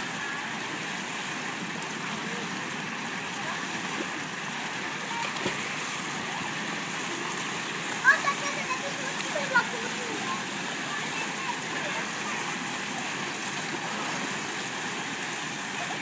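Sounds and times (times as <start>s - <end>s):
water rushing into pool: 0.0s - 16.0s
faint voices: 1.5s - 16.0s.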